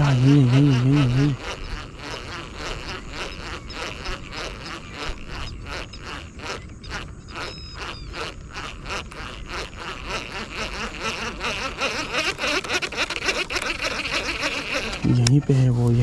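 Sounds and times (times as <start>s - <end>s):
fishing reel ticking clicks: 0.0s - 15.4s.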